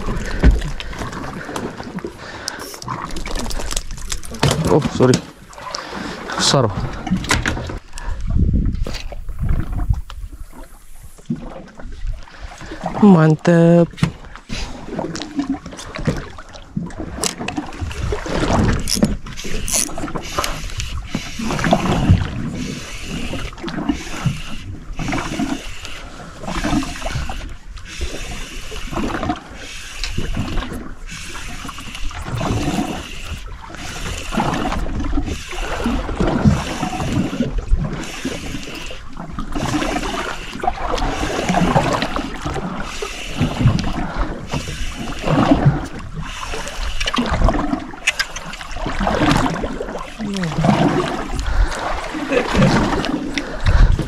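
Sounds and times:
water lapping against a boat: 0:00.0 - 0:54.0
wind on microphone: 0:06.7 - 0:13.1, 0:49.0 - 0:54.0.

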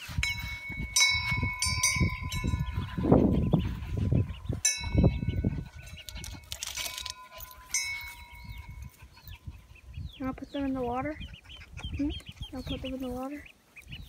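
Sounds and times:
chicks peeping: 0:00.0 - 0:14.0
wind chime ringing: 0:00.2 - 0:02.8, 0:04.6 - 0:08.9.

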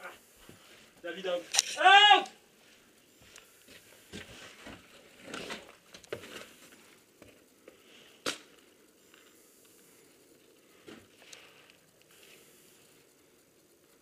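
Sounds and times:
sharp crack: 0:08.2 - 0:08.6.

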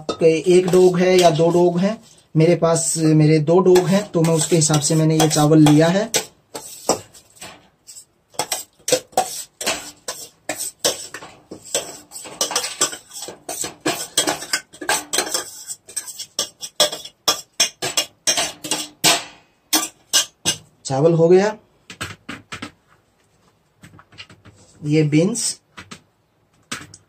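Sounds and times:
metal bowl scraping cooker: 0:00.0 - 0:02.2, 0:03.6 - 0:20.6.

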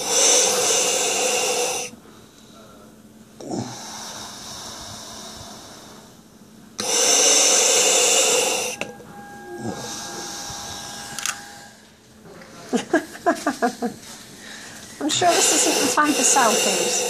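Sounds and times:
breath with whistling tone: 0:00.0 - 0:01.9, 0:06.8 - 0:08.8, 0:14.4 - 0:17.0
demand valve hissing: 0:00.0 - 0:01.9, 0:06.8 - 0:08.9, 0:15.0 - 0:17.0.

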